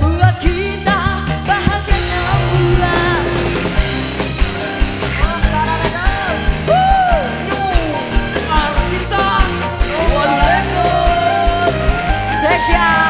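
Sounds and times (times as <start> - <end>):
woman singing: 0.0 - 3.9, 8.5 - 13.0
band playing: 0.0 - 13.0.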